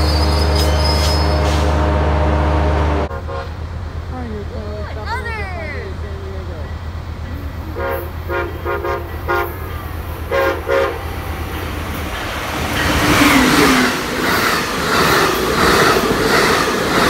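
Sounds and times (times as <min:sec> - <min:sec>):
train horn toots: 0:00.0 - 0:03.6, 0:07.7 - 0:11.3
train wheels clacking over rail joints: 0:07.8 - 0:17.0.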